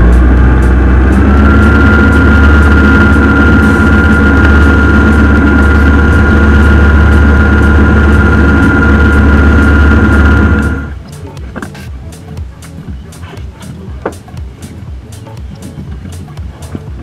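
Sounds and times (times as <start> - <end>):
boat engine drone: 0.0 - 17.0
churning wake rushing: 0.0 - 17.0
high engine whine: 0.0 - 17.0.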